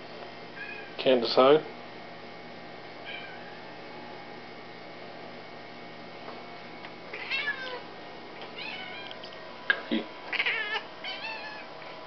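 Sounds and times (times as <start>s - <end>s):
cat meowing: 3.1s - 3.5s, 7.1s - 7.8s, 8.6s - 9.2s, 10.3s - 11.7s.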